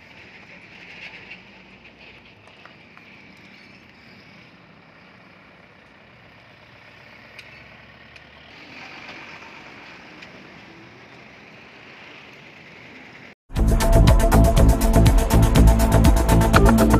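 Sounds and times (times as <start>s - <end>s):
cars driving by: 0.0s - 13.4s.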